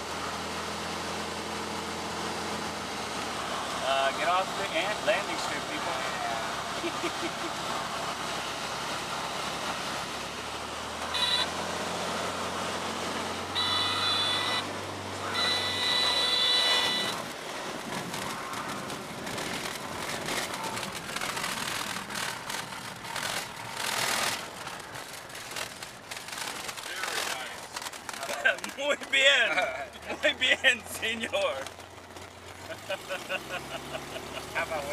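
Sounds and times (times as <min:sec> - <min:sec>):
stall warning horn blasts: 0:11.0 - 0:11.8, 0:13.4 - 0:17.4
wheels rumbling over rough grass: 0:13.0 - 0:34.9.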